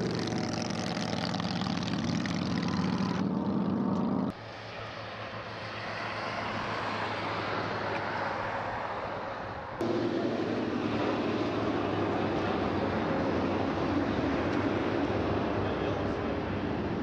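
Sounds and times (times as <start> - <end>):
motorcycle engine with wind rush: 0.0 - 4.3
engine-like hum: 0.0 - 17.0
rushing outdoor noise: 0.0 - 17.0.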